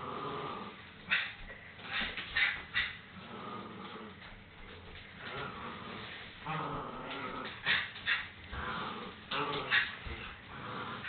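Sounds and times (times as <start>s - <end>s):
small dog growling playfully: 0.0s - 0.8s, 3.2s - 4.3s, 5.2s - 11.0s.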